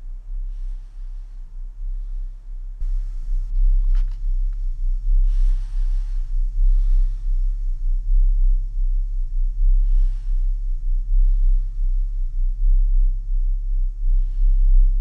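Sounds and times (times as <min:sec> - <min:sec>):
deep low rumble drone: 0:00.0 - 0:15.0
faint steady tone: 0:00.0 - 0:15.0.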